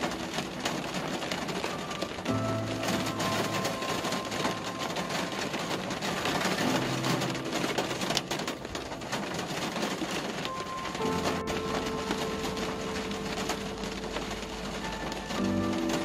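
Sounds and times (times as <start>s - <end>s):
faint held musical notes: 0.0s - 16.0s
patter of raindrops: 0.0s - 16.0s
rain and tyre noise: 0.0s - 16.0s.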